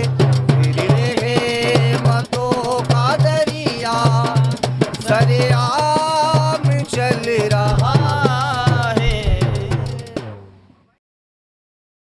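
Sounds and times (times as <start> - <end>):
hand drum strokes: 0.0 - 10.4
man singing: 0.0 - 10.4.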